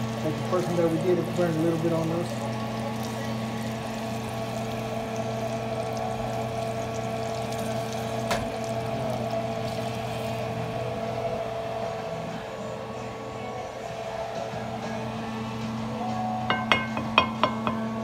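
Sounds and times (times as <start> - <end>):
oil sizzling in frying pan: 0.0 - 11.0
steady hum: 0.0 - 18.0.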